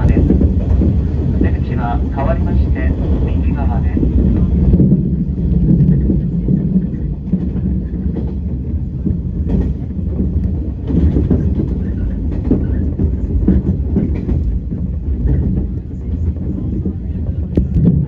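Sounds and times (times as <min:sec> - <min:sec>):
train low rumble: 0:00.0 - 0:18.0
wheels clacking on rails: 0:00.0 - 0:18.0.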